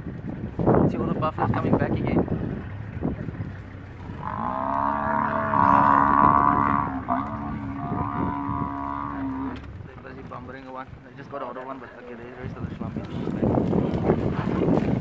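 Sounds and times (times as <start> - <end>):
buffalo bellowing: 4.0 - 9.7.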